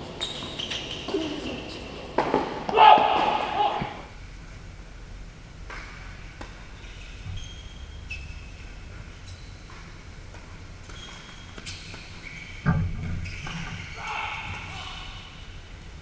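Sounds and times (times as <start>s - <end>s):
sneakers squeaking on court: 0.0s - 2.0s, 6.4s - 10.0s, 10.7s - 14.2s
tennis balls struck by rackets: 2.1s - 4.1s.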